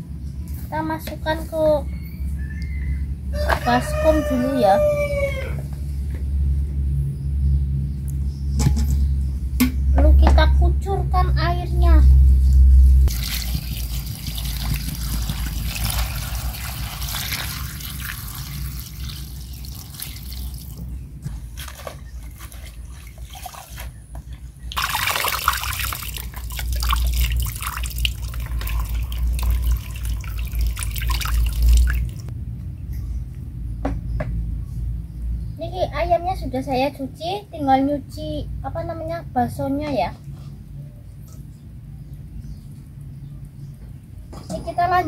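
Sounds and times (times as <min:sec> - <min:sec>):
water splashing and dripping: 0:13.0 - 0:20.9, 0:21.5 - 0:24.0, 0:24.6 - 0:32.3
water trickling: 0:13.1 - 0:20.8, 0:24.7 - 0:32.3.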